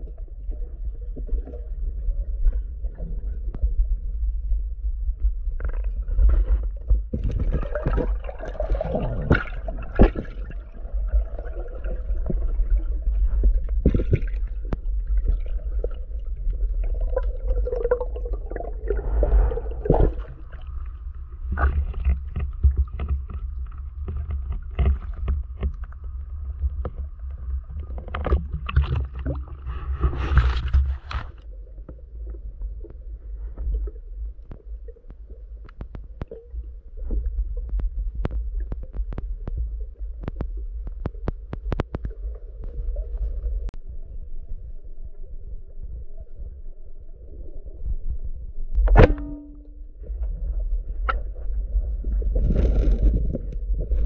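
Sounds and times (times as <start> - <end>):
underwater rumble of moving water: 0.0 - 54.0
water gurgling: 5.6 - 31.2.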